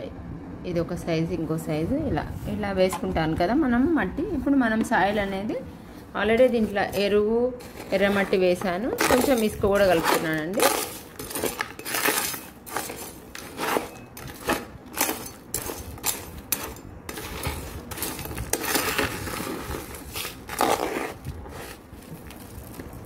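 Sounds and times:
trowel scraping gritty soil: 6.4s - 22.9s.

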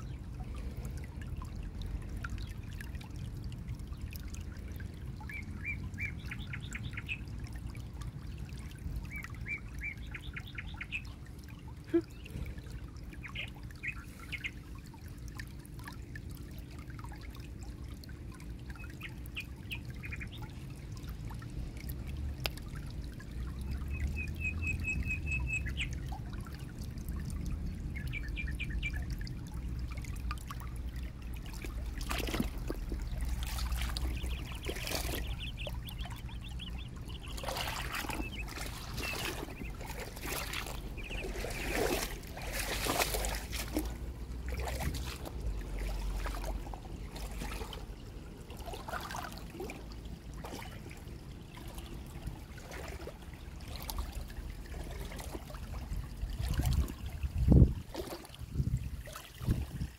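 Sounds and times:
creek trickling over pebbles: 0.0s - 59.9s
bird trilling chirps: 34.1s - 41.8s.

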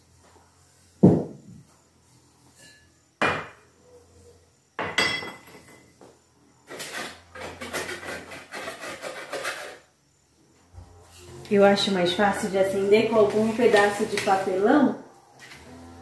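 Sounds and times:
scraping and rustling: 6.6s - 9.9s, 10.8s - 14.7s.

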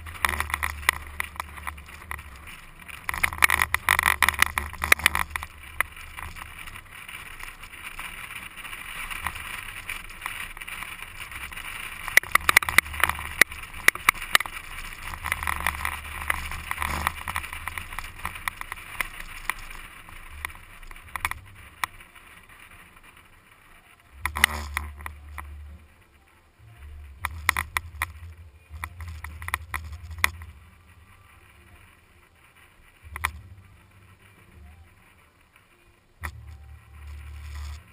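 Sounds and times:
knocks and pops: 0.0s - 23.2s, 24.1s - 25.6s, 26.9s - 30.8s, 33.0s - 33.8s
low vehicle rumble: 0.0s - 37.9s.

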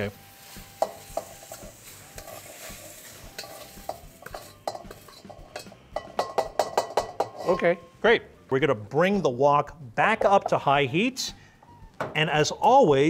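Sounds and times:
faint sizzling hiss: 0.0s - 13.0s
spatula striking wok and bowl: 0.5s - 7.5s
wooden spatula scraping wok: 0.9s - 5.9s, 7.1s - 7.7s.

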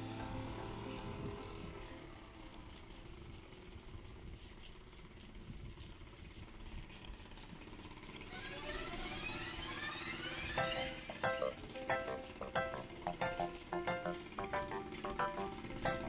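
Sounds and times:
music with rising tones: 0.0s - 3.2s, 8.3s - 16.0s.

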